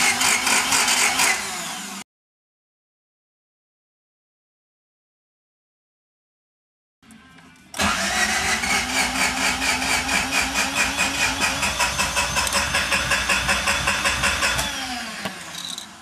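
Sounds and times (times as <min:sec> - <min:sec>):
engine cranking on starter: 0:07.8 - 0:15.7.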